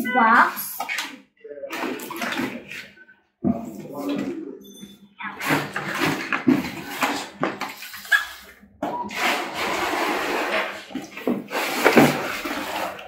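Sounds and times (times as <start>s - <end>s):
cardboard tray scraping: 5.4s - 13.0s.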